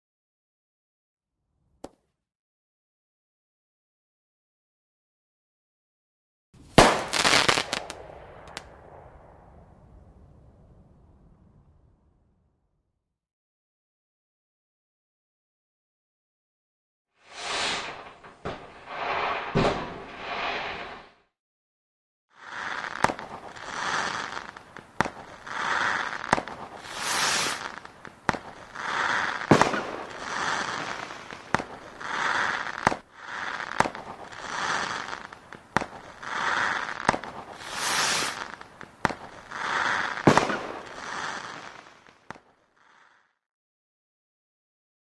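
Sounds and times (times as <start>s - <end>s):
fireworks crackling: 6.6s - 9.4s, 17.2s - 21.1s, 22.4s - 43.2s
firework bangs: 6.6s - 10.1s, 17.3s - 21.2s, 22.4s - 42.4s.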